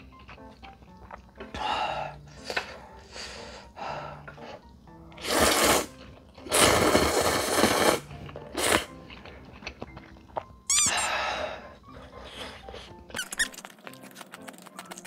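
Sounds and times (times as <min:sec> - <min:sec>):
faint background music: 0:00.0 - 0:15.0
slurping noodles: 0:05.2 - 0:09.0
squeaky sound effect: 0:10.7 - 0:11.1, 0:13.1 - 0:13.6.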